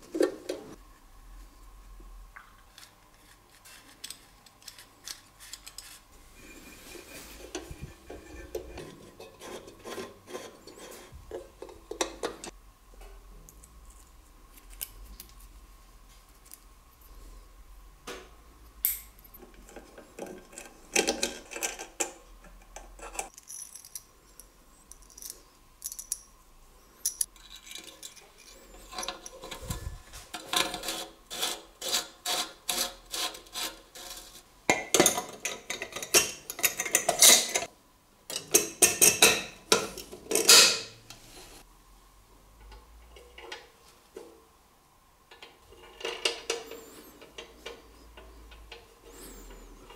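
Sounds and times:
metal parts clicking and scraping: 2.8s - 6.1s, 23.0s - 26.3s, 27.0s - 34.4s.

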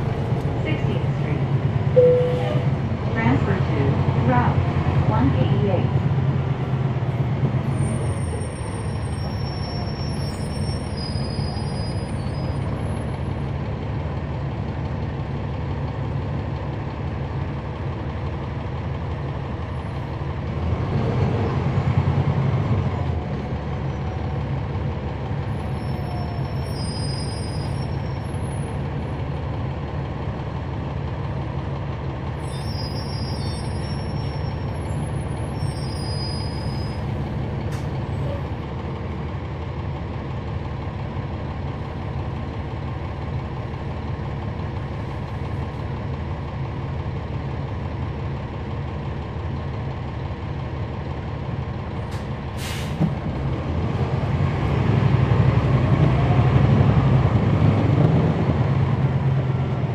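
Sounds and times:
diesel bus engine running: 0.0s - 59.9s.

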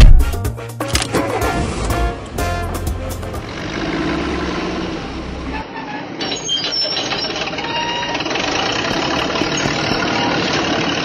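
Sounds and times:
heavy machine engine running: 1.2s - 5.6s, 6.9s - 11.0s
rapid knocking clatter: 7.2s - 11.0s.

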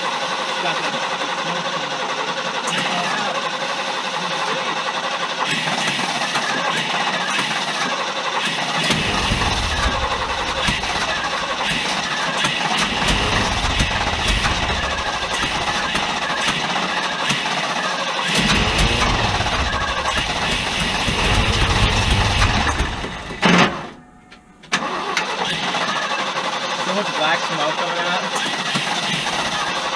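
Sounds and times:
engine rumbling unevenly: 8.6s - 25.4s.

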